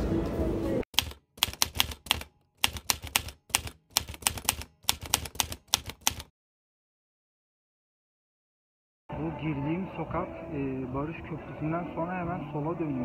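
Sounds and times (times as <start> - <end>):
street sound: 0.0 - 6.2, 9.1 - 13.0
typewriter keys clacking: 1.0 - 6.3.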